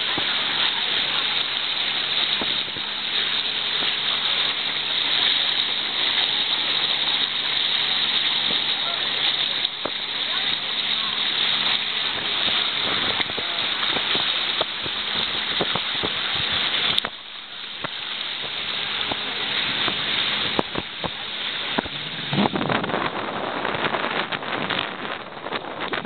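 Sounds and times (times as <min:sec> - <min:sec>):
boat engine humming: 0:00.0 - 0:26.0
water rushing past a boat: 0:00.0 - 0:26.0
wind buffeting microphone: 0:19.0 - 0:26.0.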